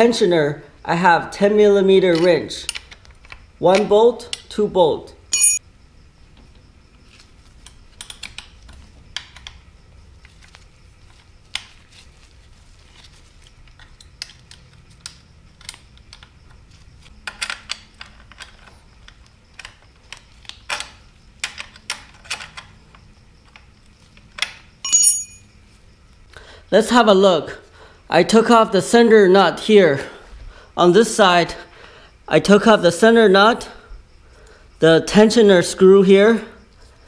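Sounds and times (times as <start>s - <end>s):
ringing metal clink: 5.3s - 5.6s, 24.8s - 25.5s.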